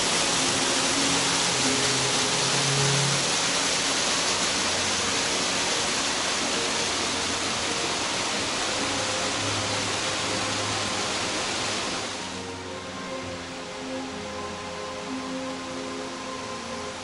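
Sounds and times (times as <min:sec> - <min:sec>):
water rushing down rock slab: 0:00.0 - 0:12.4.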